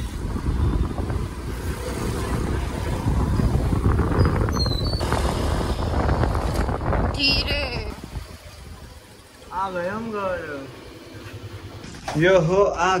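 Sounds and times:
wind buffeting microphone: 0.0 - 9.1
road noise: 0.0 - 13.0.

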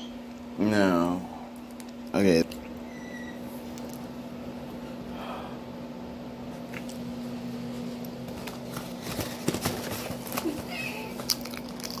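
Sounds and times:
steady low hum: 0.0 - 12.0
plastic bag crinkling: 8.6 - 12.0.

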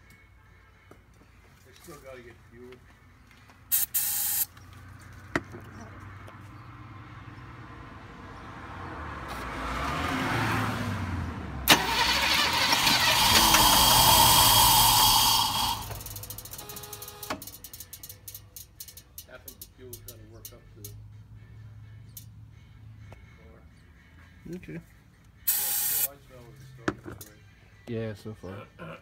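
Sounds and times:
car engine running: 11.7 - 16.8
car engine cranking: 11.7 - 20.2.

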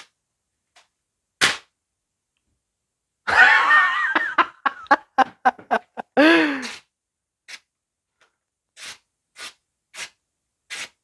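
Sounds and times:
sharp slap: 1.4 - 1.7
knife slicing through paper: 8.8 - 11.0.

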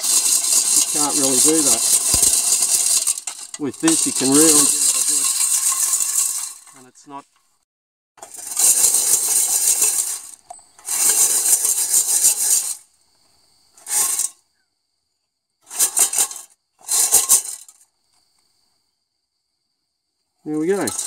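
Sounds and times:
gravel rattling in metal sieve: 0.0 - 7.0, 8.2 - 12.8, 13.8 - 14.4, 15.6 - 17.8, 20.5 - 21.0.

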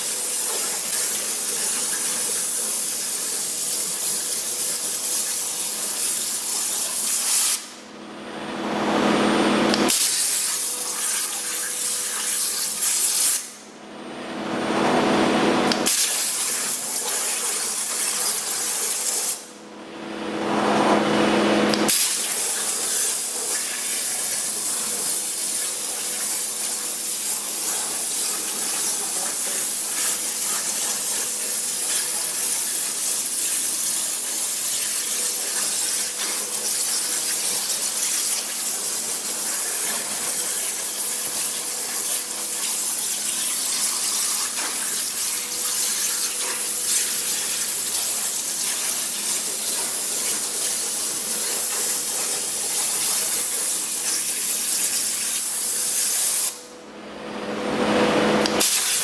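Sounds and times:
water jet hissing: 21.9 - 56.6.

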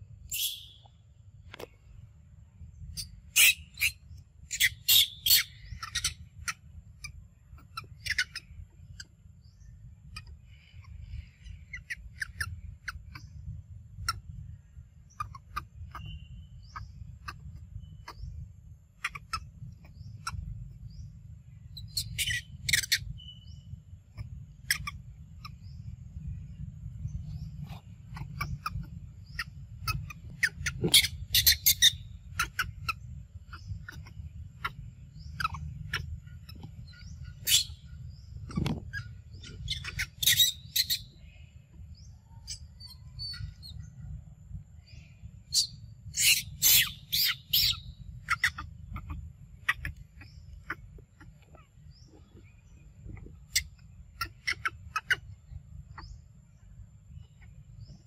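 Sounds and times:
steady low rumble: 0.0 - 58.0
animal squeaks and chirps: 0.3 - 0.9, 2.8 - 9.1, 11.1 - 14.4, 15.0 - 18.4, 19.0 - 20.6, 21.6 - 23.4, 24.2 - 25.7, 27.1 - 41.2, 42.4 - 43.9, 45.5 - 52.5, 53.1 - 56.2.

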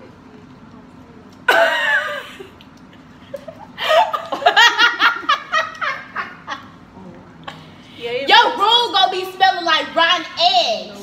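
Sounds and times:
girls laughing: 1.5 - 6.8.

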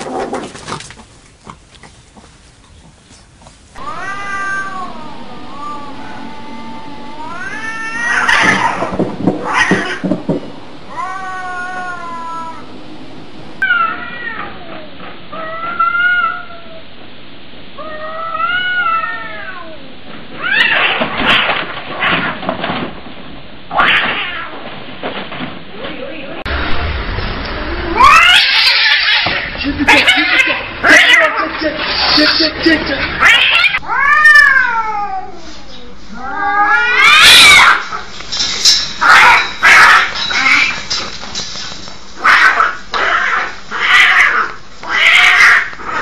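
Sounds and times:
cats screeching in a fight: 3.8 - 10.2, 20.3 - 22.4, 23.7 - 24.6, 28.0 - 32.5, 33.1 - 38.1, 39.0 - 40.9, 42.2 - 46.0
cats yowling: 3.8 - 10.3, 10.9 - 12.8, 13.6 - 16.8, 17.8 - 21.1, 23.7 - 24.6, 27.8 - 32.3, 33.1 - 35.5, 36.1 - 38.1, 39.0 - 40.8, 42.2 - 46.0.

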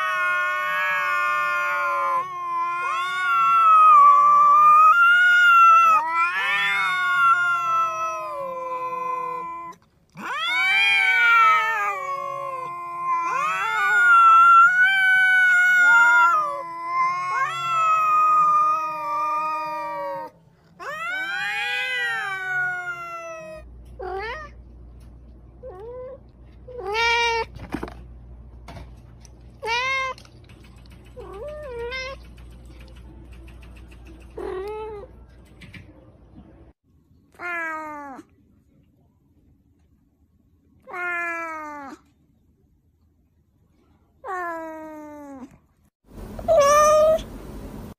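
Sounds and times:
cat meowing: 0.0 - 24.6, 46.5 - 47.3
cats caterwauling: 0.0 - 24.6, 25.6 - 27.5, 29.6 - 32.9, 34.2 - 35.2, 40.9 - 42.1, 46.5 - 47.3.

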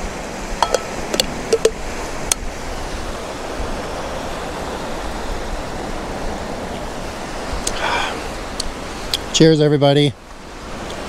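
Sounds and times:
waves washing onto rocky shore: 0.0 - 11.0
metal cup and lid clicking: 0.6 - 1.8.

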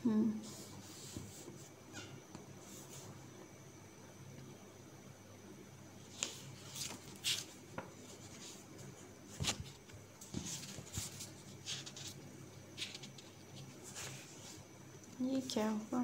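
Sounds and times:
book pages rustling and turning: 6.0 - 14.7.

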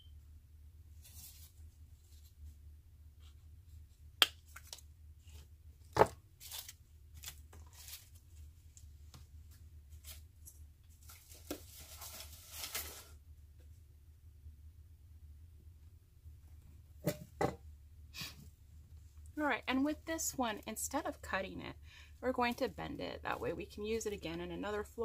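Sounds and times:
plastic foliage rustling: 6.4 - 8.2, 10.9 - 13.2.

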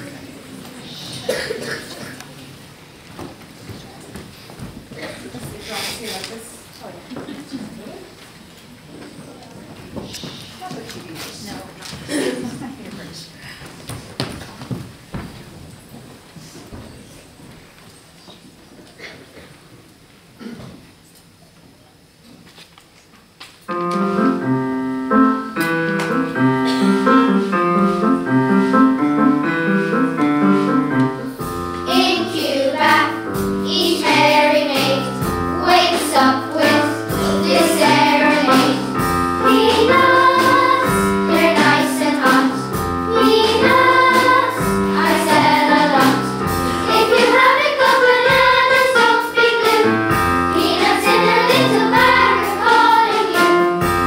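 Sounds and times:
instrumental accompaniment: 23.7 - 54.0
children's choir singing: 24.0 - 54.0.

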